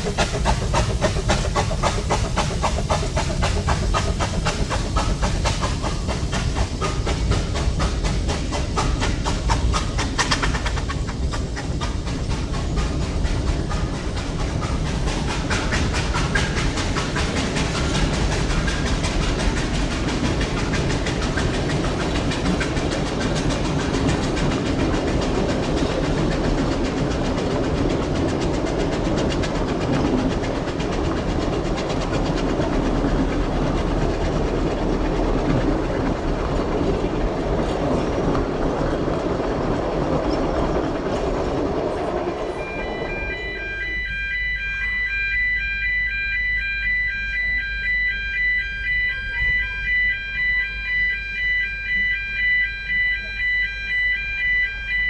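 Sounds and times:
hissing steam: 0:00.0 - 0:26.8
wheels clacking over rail joints: 0:00.0 - 0:43.6
carriages rumbling by: 0:00.0 - 0:44.1
steam locomotive exhaust beats: 0:00.0 - 0:55.0.

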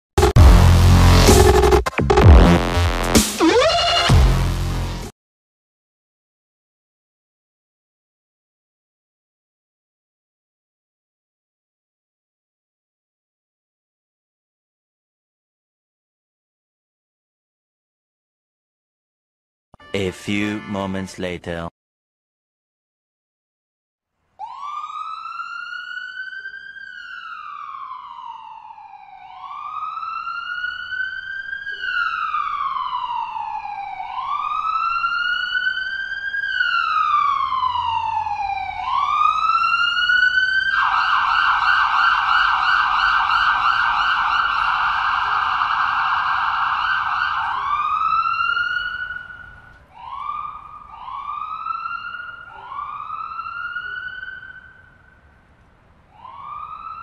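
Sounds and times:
ambulance siren wailing and yelping: 0:03.4 - 0:04.4, 0:24.4 - 0:55.3, 0:56.1 - 0:57.0.

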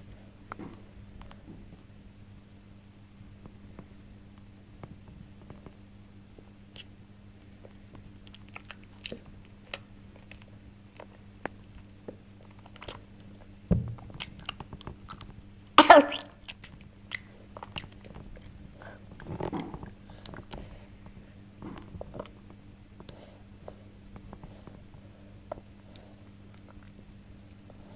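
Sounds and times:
low thump: 0:13.7 - 0:14.0.

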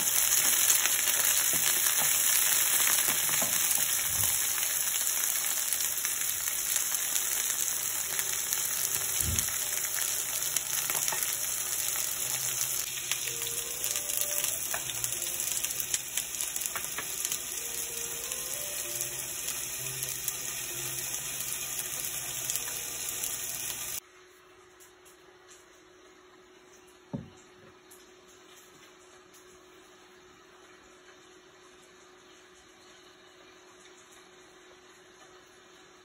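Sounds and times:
oil sizzling in a frying pan: 0:00.0 - 0:24.0.

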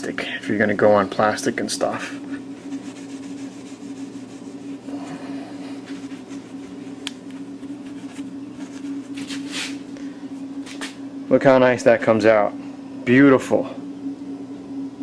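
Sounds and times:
low machine hum: 0:00.0 - 0:15.0
steel wool rubbing metal: 0:02.5 - 0:09.8.

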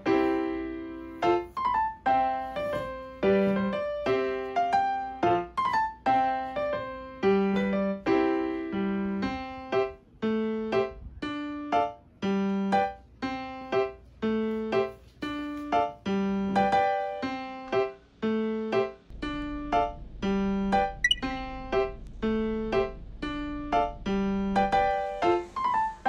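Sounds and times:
piano music: 0:00.0 - 0:26.0.

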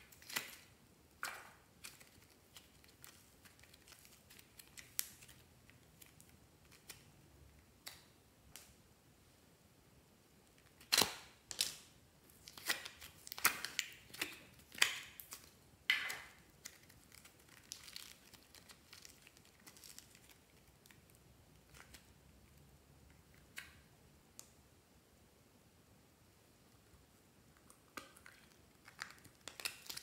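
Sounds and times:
sticky slime crackling and tearing: 0:12.4 - 0:21.1, 0:28.2 - 0:30.0.

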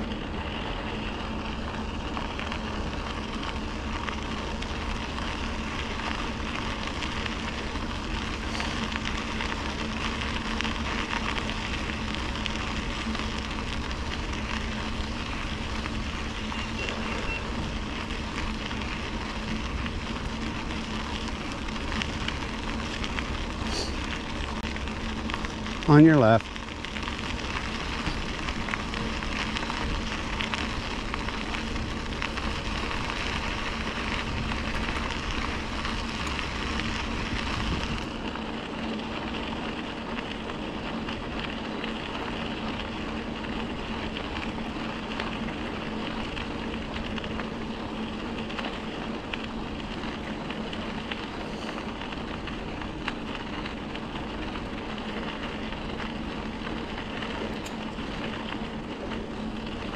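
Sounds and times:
bicycle tyres rolling on trail: 0:00.0 - 0:59.9.

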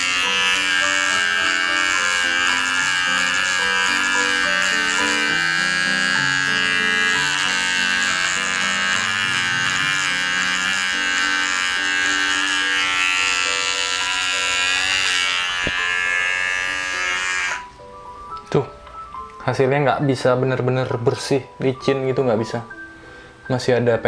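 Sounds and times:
electric shaver buzzing: 0:00.0 - 0:17.8
background music: 0:00.0 - 0:24.0.

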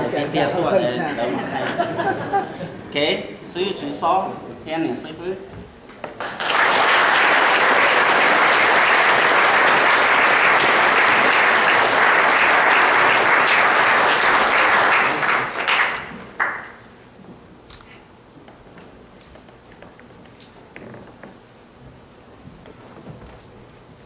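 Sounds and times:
crowd clapping: 0:06.1 - 0:16.9.

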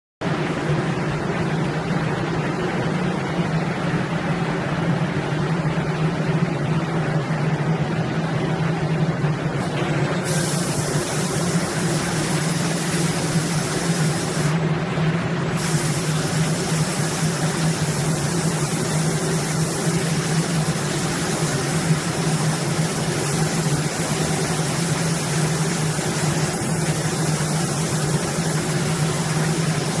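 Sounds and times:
machine hum and rushing: 0:06.1 - 0:30.0
spray gun air hiss: 0:09.7 - 0:14.6, 0:15.5 - 0:30.0.

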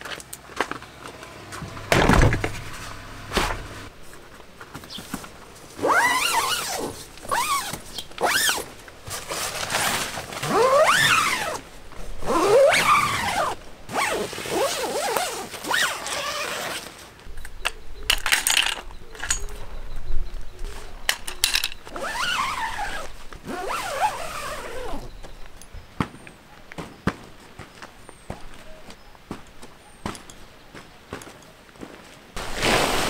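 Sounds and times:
heavy thud of fridge set down: 0:01.9 - 0:02.6
tent zippers zipping: 0:05.8 - 0:11.6, 0:12.2 - 0:17.0, 0:21.9 - 0:25.1, 0:32.4 - 0:33.0.

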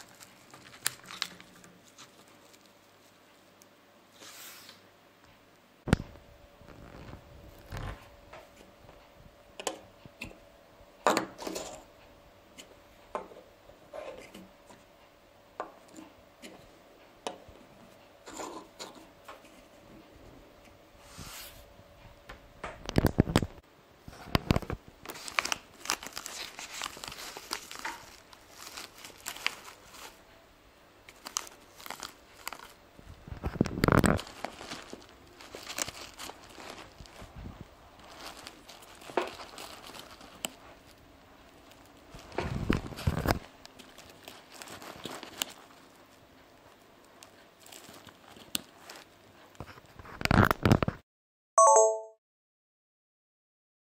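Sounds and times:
fabric rustling and crinkling: 0:00.0 - 0:03.5, 0:06.1 - 0:08.1, 0:22.9 - 0:30.4, 0:31.1 - 0:51.0.

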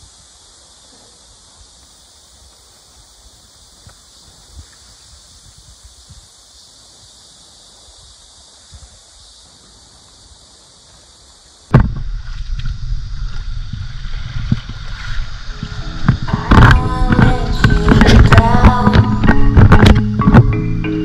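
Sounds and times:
insects buzzing: 0:00.0 - 0:21.0
wind on microphone: 0:00.0 - 0:21.0.

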